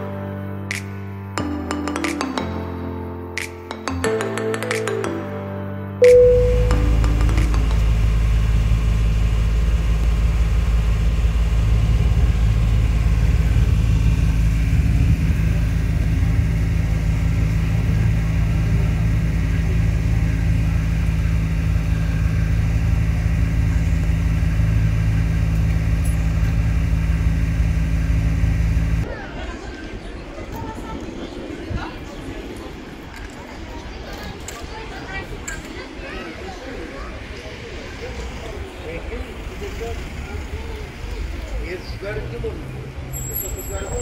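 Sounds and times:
boat engine droning: 6.1 - 29.6.

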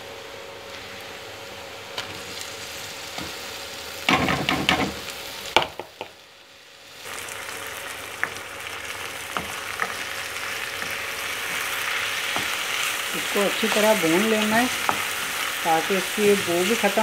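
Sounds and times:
meat sizzling in frying pan: 0.1 - 17.0.

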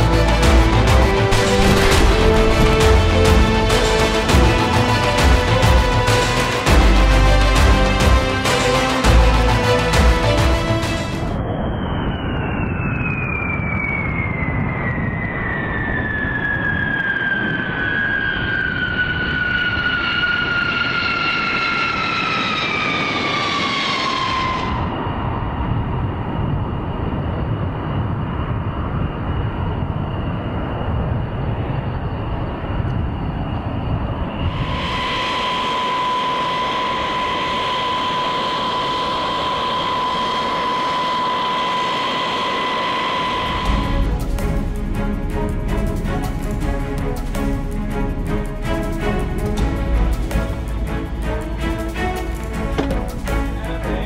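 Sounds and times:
rushing jet noise: 0.0 - 54.0
jet engine whine falling in pitch: 10.8 - 45.1.

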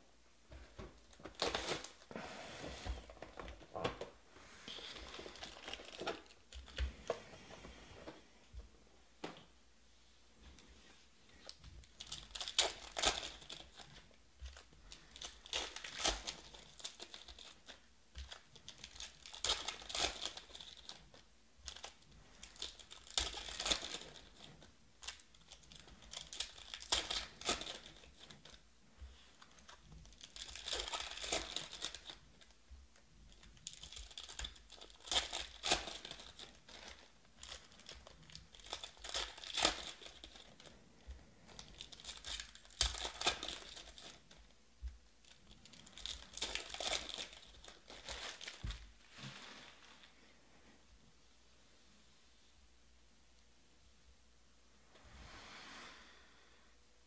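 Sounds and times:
foil wrappers crinkling: 1.0 - 2.1, 4.7 - 6.9, 11.4 - 32.6, 33.3 - 44.5, 45.2 - 50.1
card packs tearing open: 1.3 - 2.1, 12.0 - 13.9, 14.9 - 21.0, 30.1 - 32.2, 33.6 - 40.8, 41.5 - 44.3, 45.6 - 48.6.

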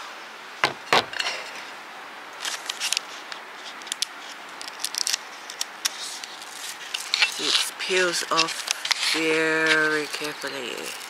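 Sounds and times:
backing paper crackling: 2.4 - 11.0.

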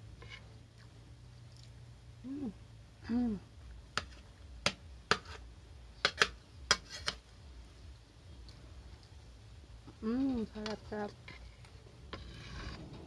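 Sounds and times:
person humming mm: 2.2 - 3.4
spoon scraping ceramic plate: 6.0 - 7.2, 10.6 - 13.0.

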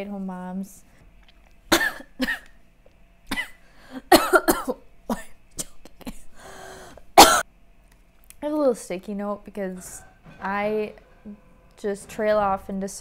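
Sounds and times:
woman clearing throat: 1.7 - 2.5, 3.3 - 6.3, 7.2 - 7.4
woman coughing: 1.7 - 2.5, 3.3 - 6.4, 7.2 - 7.4
breathy exhale: 6.4 - 7.0.

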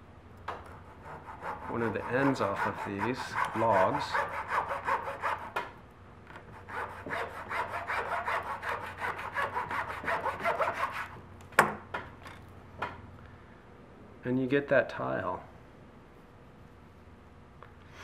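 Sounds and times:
hand saw cutting wood: 0.7 - 5.6, 6.5 - 11.2.

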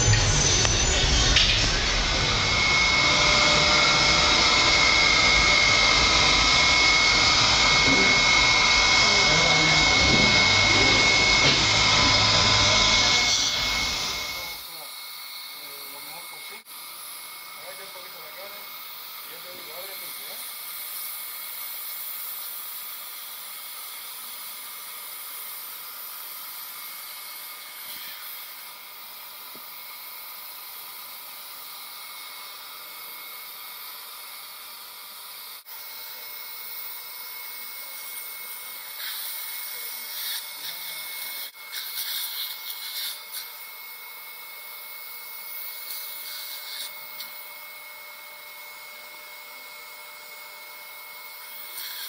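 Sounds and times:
dental suction hissing: 0.0 - 49.1, 50.9 - 52.0.

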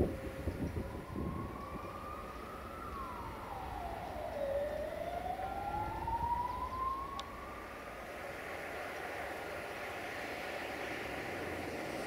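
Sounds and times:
emergency siren wailing: 0.0 - 12.0.

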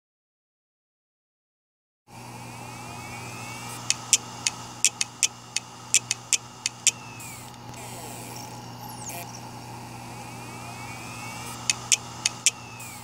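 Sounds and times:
falling whine: 2.1 - 13.0
steady low hum: 2.1 - 13.0
hard drive clicking: 2.7 - 13.0
scratchy noise burst: 3.2 - 13.0.

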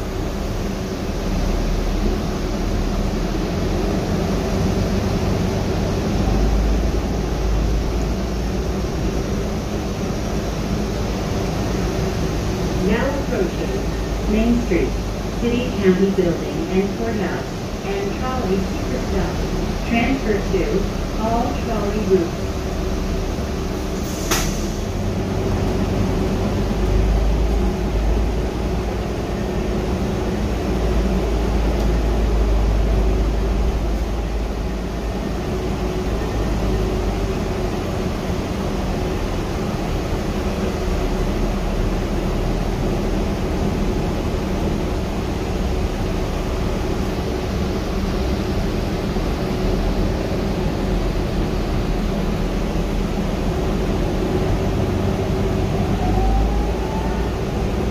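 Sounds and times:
steady hum: 0.0 - 24.0
bus drivetrain rumble: 0.0 - 57.9.

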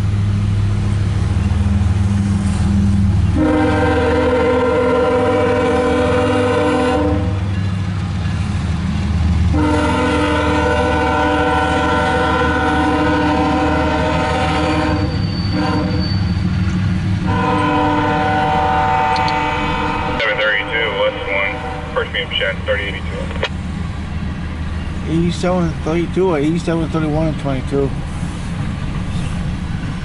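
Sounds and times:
train wheels rumbling on rail: 0.0 - 30.0
locomotive air horn blasts: 3.3 - 7.5, 9.5 - 16.1, 17.2 - 22.2.

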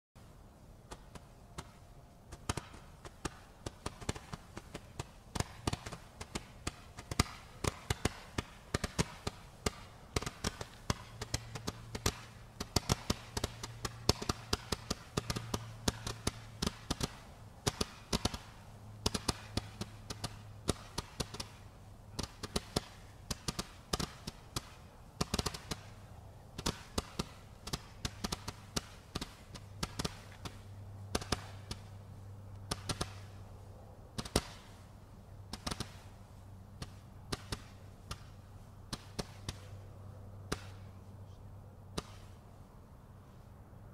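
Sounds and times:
firework pops: 0.9 - 21.6, 22.2 - 26.0, 26.6 - 31.9.

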